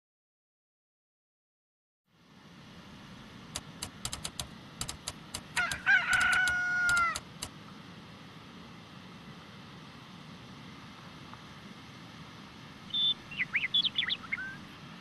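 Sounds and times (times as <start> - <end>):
low background hiss: 2.1 - 15.0
sharp clicks: 3.6 - 7.5
rooster crowing: 5.5 - 7.3.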